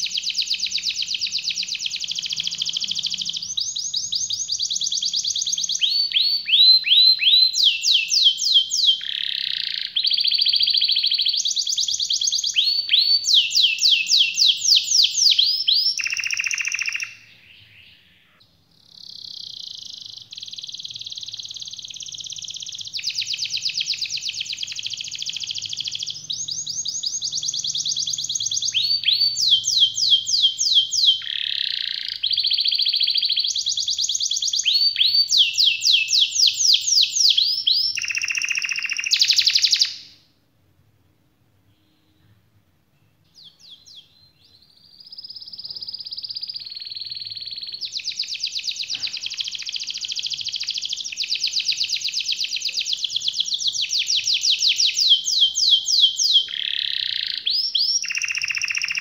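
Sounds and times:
canary singing trills: 0.0 - 40.2, 43.1 - 59.0.

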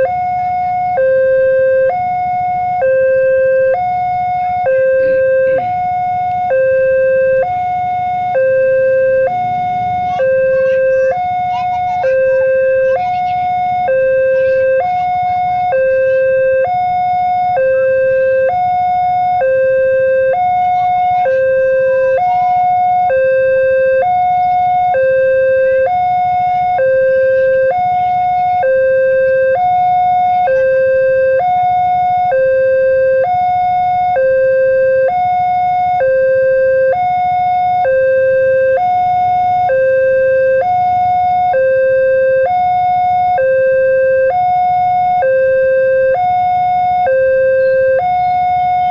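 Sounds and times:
level crossing two-tone alarm: 0.0 - 48.9.

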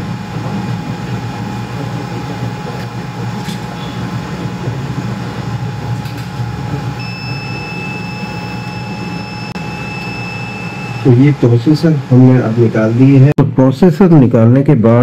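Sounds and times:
fans humming with thin whine: 0.0 - 15.0
high buzzer beep: 3.7 - 4.2, 7.0 - 12.2.

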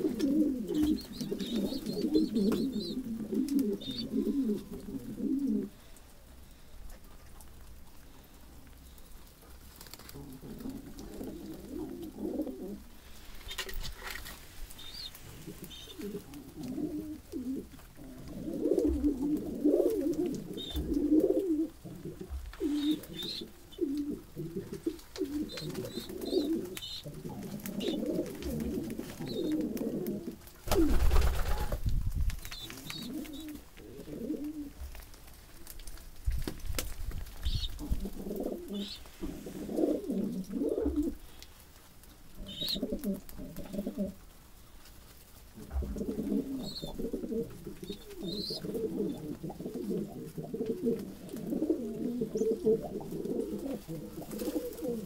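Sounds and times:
pigeons cooing: 0.0 - 5.8, 10.1 - 13.0, 14.7 - 31.8, 32.5 - 34.8, 37.4 - 41.4, 42.4 - 44.2, 45.6 - 55.0.

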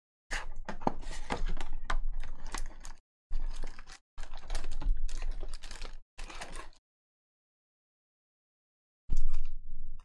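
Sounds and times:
foil packs crinkling and clicking: 1.6 - 6.8.

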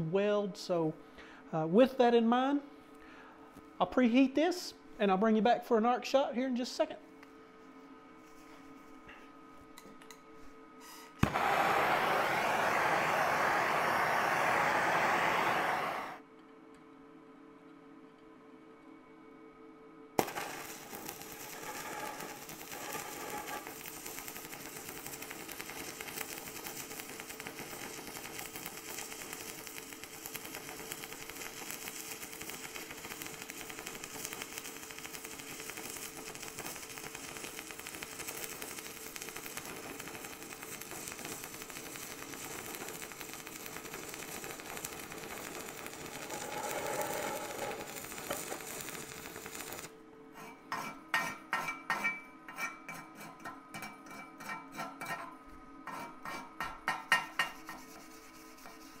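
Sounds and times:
welding arc crackling: 11.2 - 16.2, 20.2 - 50.0.

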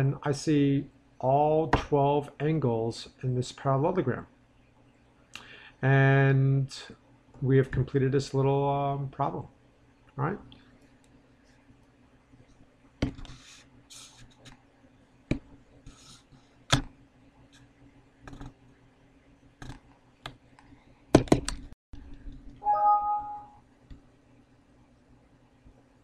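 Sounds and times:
computer mouse clicks and taps: 16.7 - 16.9, 17.6 - 18.6, 19.6 - 20.6
computer warning chime: 22.6 - 23.6.

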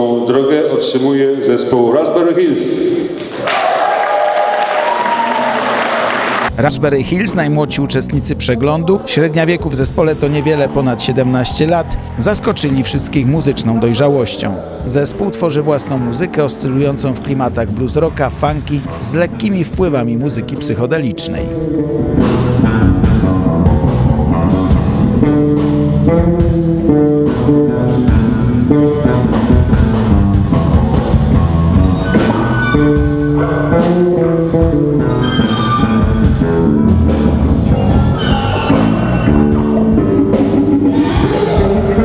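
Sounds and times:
electric guitar melody: 6.5 - 42.0
blues-rock band playing live: 21.6 - 42.0.

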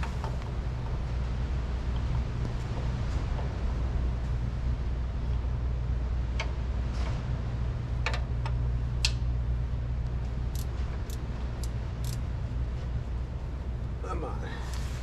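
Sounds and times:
wrench clicking on bolt: 10.5 - 12.2.

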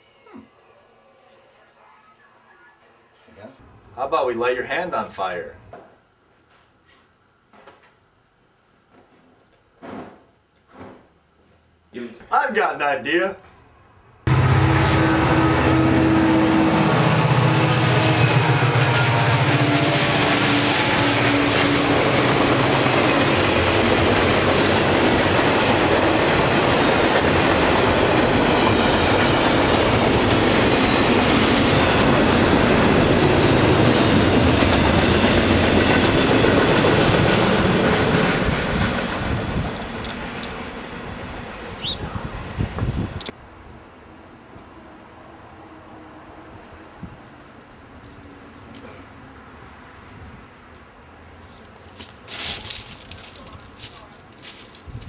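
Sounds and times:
freight train rumbling past: 14.2 - 51.4
low drone: 14.3 - 22.8.

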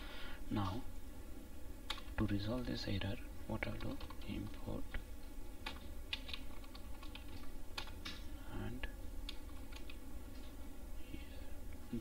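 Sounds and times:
steady low hum: 0.0 - 12.0
typing on keyboard: 3.7 - 4.6, 5.6 - 8.0, 9.3 - 10.0.

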